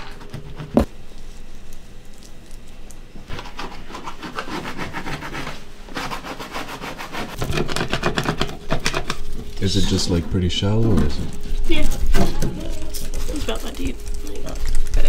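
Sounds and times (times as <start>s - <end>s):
scrub pad scrubbing stovetop: 3.3s - 11.2s.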